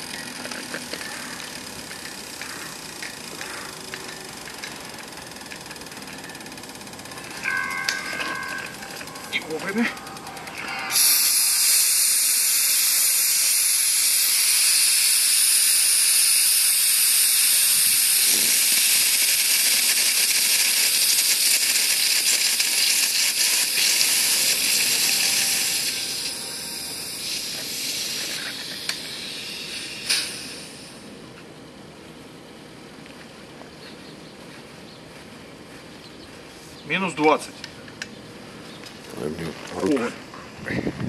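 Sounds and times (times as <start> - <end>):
high-pressure air hissing: 10.6 - 31.2.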